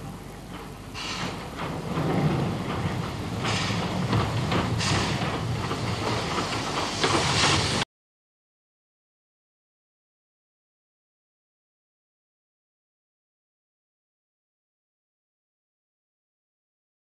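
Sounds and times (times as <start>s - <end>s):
steam hissing: 0.0s - 7.8s
steam locomotive rumbling past: 0.0s - 7.8s.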